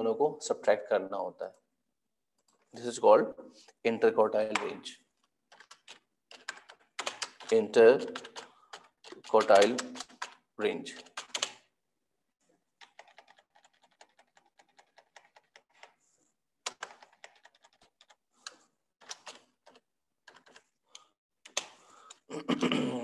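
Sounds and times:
computer keyboard typing: 5.5s - 11.7s, 12.8s - 16.0s, 16.6s - 22.2s.

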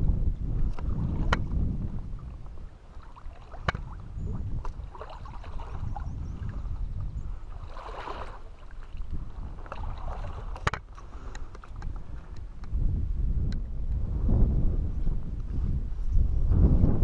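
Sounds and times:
wind rumbling on microphone: 0.0s - 17.0s
water lapping against rocks: 0.6s - 12.6s
splash or rustle: 2.9s - 6.6s, 7.6s - 11.8s.

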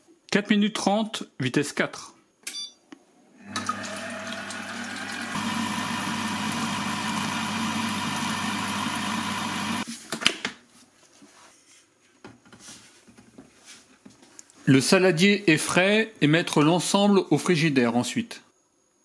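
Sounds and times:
food processor motor whining: 3.4s - 9.8s.

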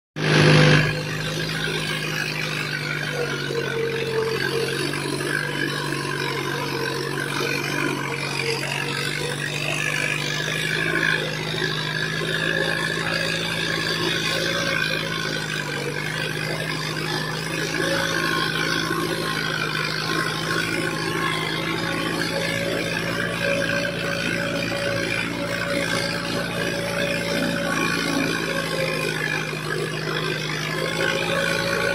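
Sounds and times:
tractor diesel engine running: 0.2s - 31.9s
muddy water churning: 0.6s - 31.9s.

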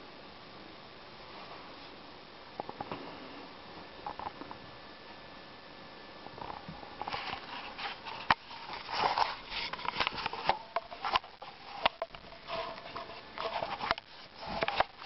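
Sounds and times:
rubbing on camera: 7.0s - 15.0s.

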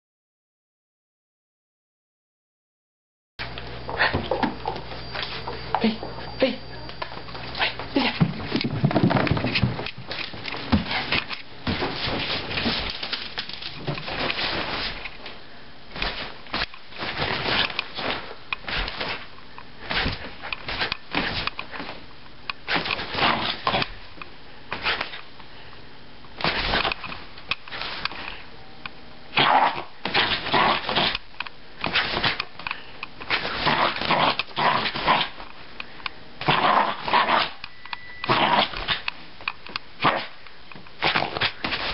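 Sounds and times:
dog barking and growling: 22.7s - 23.9s, 29.3s - 31.2s, 33.3s - 35.4s, 36.4s - 37.6s, 38.3s - 39.1s, 40.0s - 40.4s.

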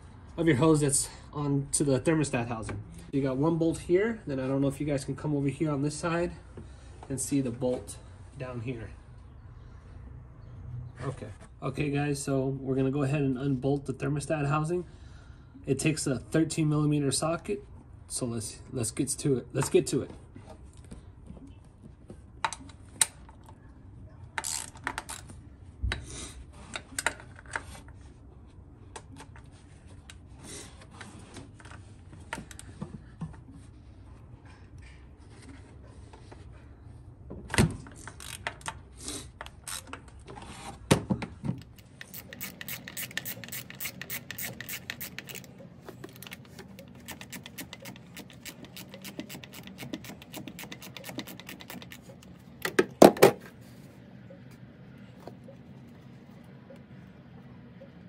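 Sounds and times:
tool clicks and knocks: 41.4s - 53.5s
ratchet clicking: 41.6s - 52.3s.

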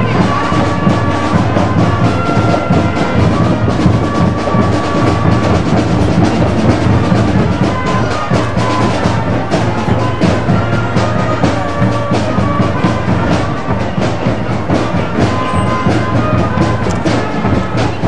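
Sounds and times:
music with drum beat: 0.0s - 18.0s.

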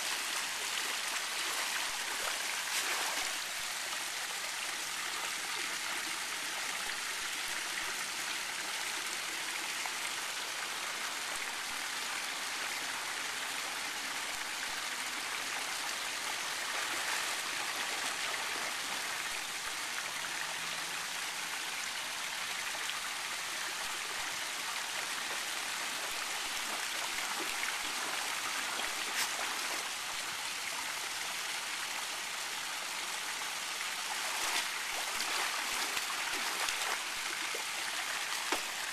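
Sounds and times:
fountain splashing into pool: 34.1s - 38.9s
dog splashing in water: 34.2s - 37.0s.

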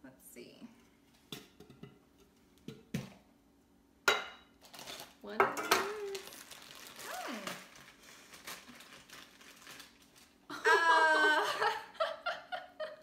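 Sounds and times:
wrapper crinkling: 4.6s - 5.2s, 5.8s - 10.5s
woman exclaiming loudly: 7.0s - 7.6s, 10.6s - 11.6s.

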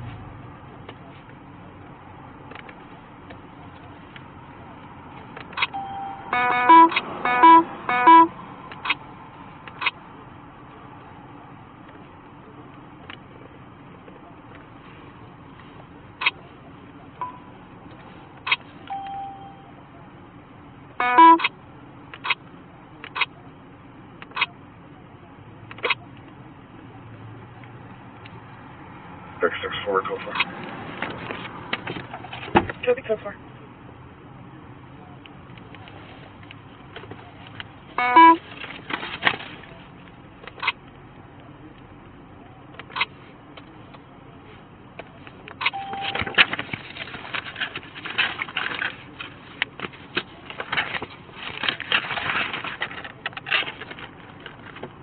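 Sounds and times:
soft clicks and handling rustles: 0.0s - 5.8s, 11.8s - 19.3s, 30.1s - 32.9s, 35.1s - 55.0s
short beeps: 5.7s - 8.3s, 17.2s - 17.6s, 18.9s - 19.7s, 21.0s - 21.5s, 38.0s - 38.4s, 45.6s - 46.4s
burst of electronic tones: 5.8s - 8.3s, 21.0s - 21.5s, 38.0s - 38.4s.

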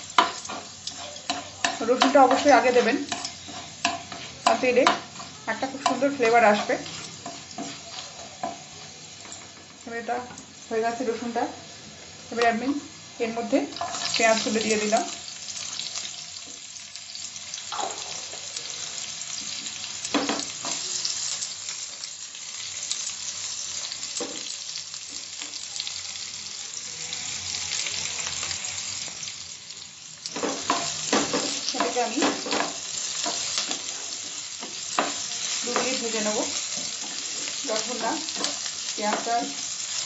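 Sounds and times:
onions sizzling in oil: 0.0s - 40.0s
wooden spatula stirring and scraping: 0.2s - 9.5s.

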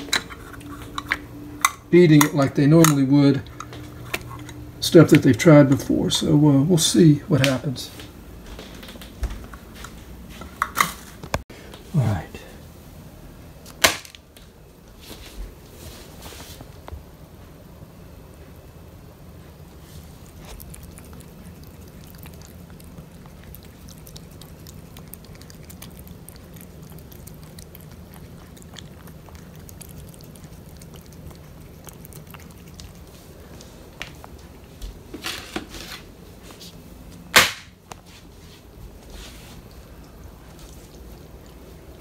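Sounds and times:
cat chewing wet food: 0.0s - 6.1s, 13.5s - 35.2s, 38.7s - 42.0s.

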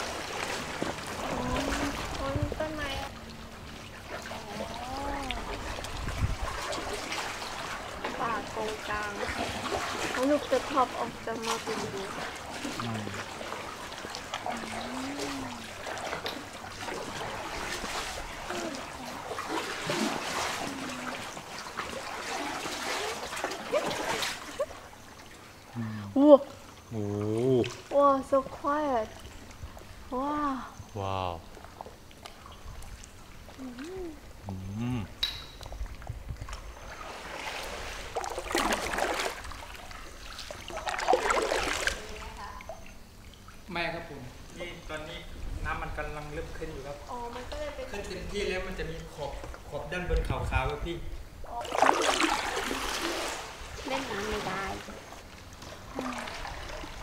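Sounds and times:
water dripping: 0.0s - 25.7s
paddle strokes splashing: 0.0s - 25.8s, 35.7s - 42.5s, 51.5s - 57.0s
water lapping around boat: 0.0s - 57.0s.

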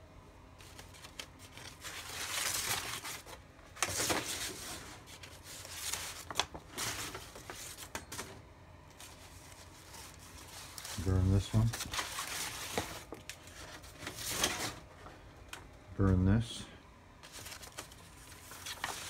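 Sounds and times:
paper rustling and crinkling: 0.6s - 15.6s, 17.2s - 19.0s.

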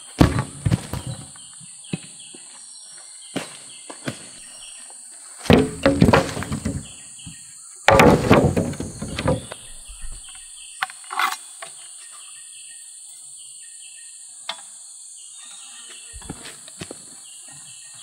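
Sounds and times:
insect drone with chirps: 0.0s - 18.0s
bamboo poles clattering: 0.1s - 1.4s, 5.4s - 7.0s, 7.9s - 11.8s.

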